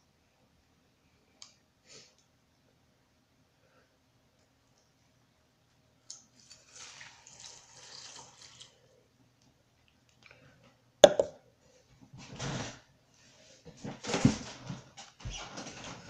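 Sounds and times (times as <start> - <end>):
milk pouring onto cereal: 6.1 - 9.0
sharp knock: 11.0 - 11.3.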